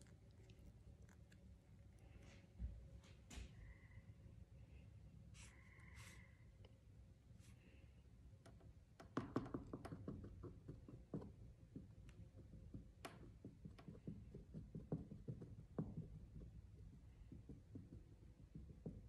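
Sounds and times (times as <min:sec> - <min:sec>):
low steady hum: 0:00.0 - 0:09.1.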